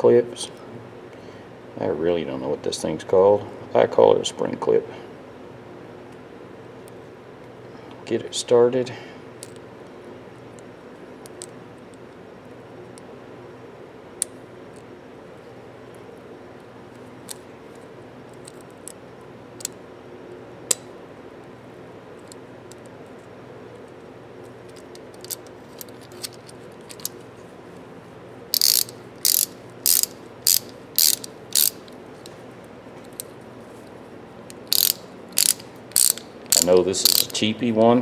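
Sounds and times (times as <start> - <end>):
ratchet wrench clicking: 28.5 - 31.9, 34.6 - 37.4.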